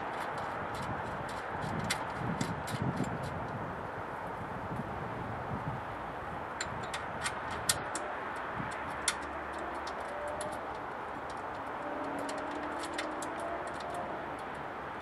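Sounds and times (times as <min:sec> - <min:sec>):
light metallic clicks and taps: 0:06.6 - 0:14.7.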